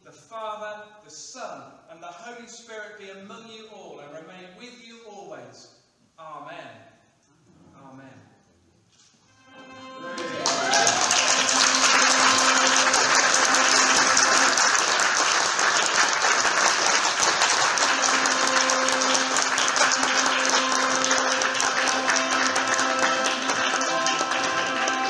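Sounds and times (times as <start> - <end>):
held music notes: 9.2 - 25.0
crowd applauding: 9.8 - 25.0.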